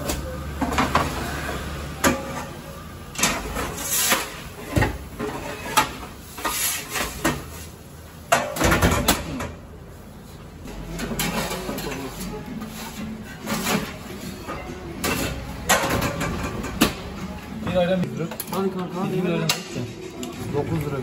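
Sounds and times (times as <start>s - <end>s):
kitchen clatter: 0.0s - 9.7s, 10.6s - 17.2s.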